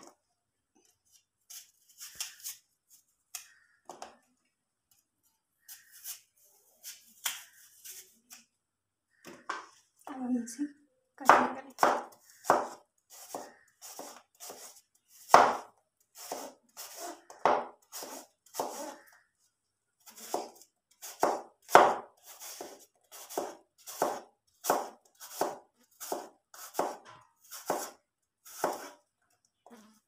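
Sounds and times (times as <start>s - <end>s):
knife chopping on plastic board: 11.3s - 14.6s, 15.3s - 15.7s, 20.2s - 28.0s.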